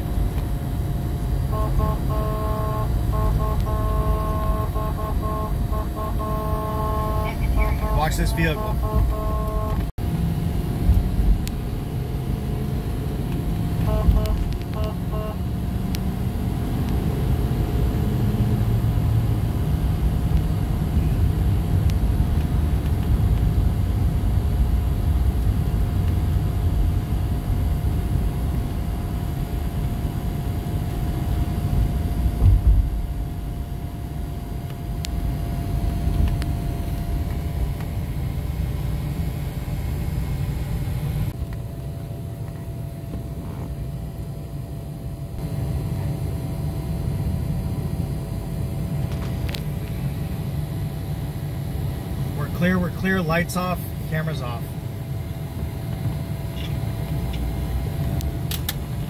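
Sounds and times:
faint steady whine: 0:00.0 - 0:16.0
road and engine noise: 0:00.0 - 0:59.0
short beeps: 0:01.5 - 0:09.9, 0:13.8 - 0:15.4.

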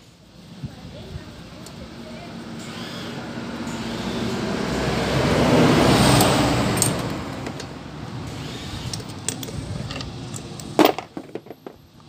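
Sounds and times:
motor vehicle passing by: 0:02.2 - 0:10.5.

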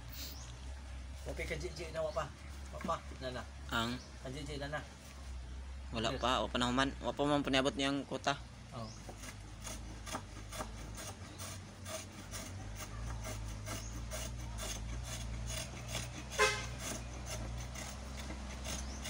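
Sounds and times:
chisel scraping wood: 0:09.0 - 0:19.0.

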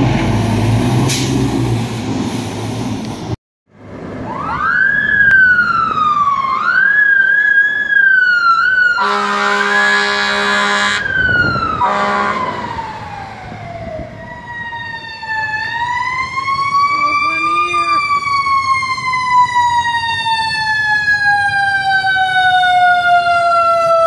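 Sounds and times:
fire truck siren wailing: 0:04.0 - 0:24.0
horn blasts: 0:09.0 - 0:11.1, 0:11.8 - 0:12.6.

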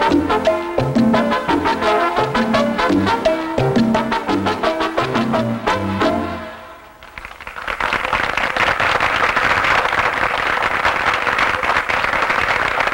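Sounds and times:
crowd applause: 0:07.0 - 0:12.9.

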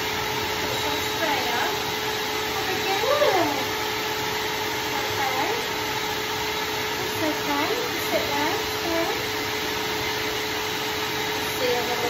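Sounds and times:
grooming dryer whirring: 0:00.0 - 0:12.0.

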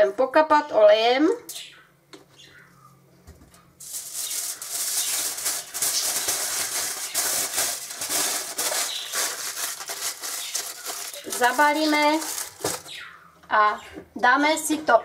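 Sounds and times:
aluminium foil crinkling: 0:03.8 - 0:13.0.

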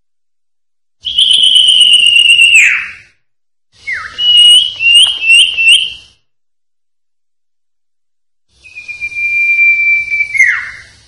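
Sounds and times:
bird whistling song: 0:01.0 - 0:03.2, 0:03.8 - 0:06.2, 0:08.6 - 0:11.0.

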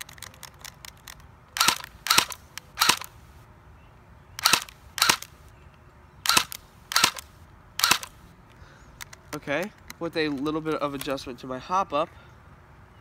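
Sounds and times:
airsoft gun single shots: 0:06.2 - 0:08.1.

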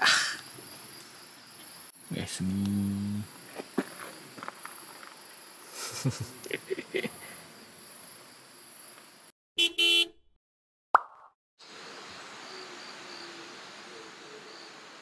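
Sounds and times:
car horn toots: 0:09.6 - 0:10.2.

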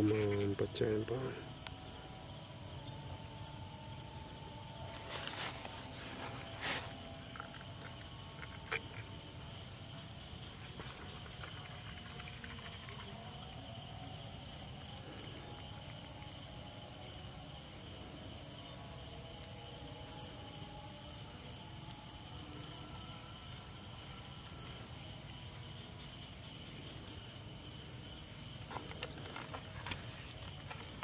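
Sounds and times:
night insects chirring: 0:00.0 - 0:31.0.

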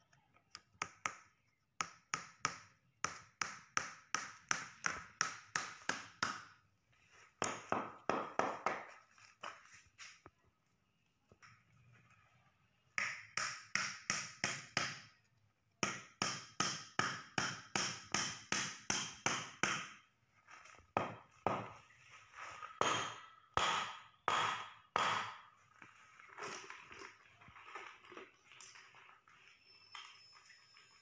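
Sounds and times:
chopping wooden block: 0:22.8 - 0:25.4.

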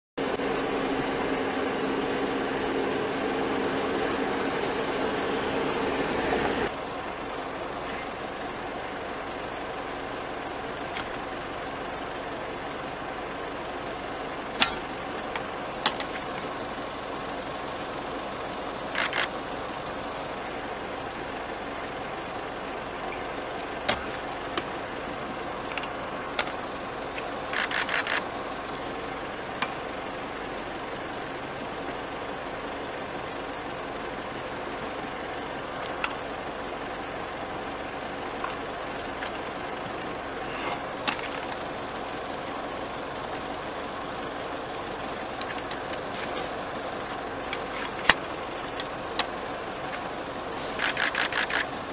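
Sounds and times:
vehicle engine idling: 0:00.2 - 0:51.9
quick run of clicks: 0:27.2 - 0:28.3, 0:50.7 - 0:51.7.

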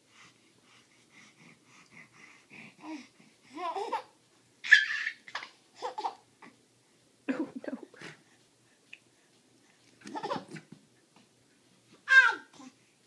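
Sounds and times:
baby babbling and laughing: 0:02.8 - 0:06.2, 0:12.1 - 0:12.8
baby high-pitched shriek: 0:04.6 - 0:05.2, 0:12.1 - 0:12.5.

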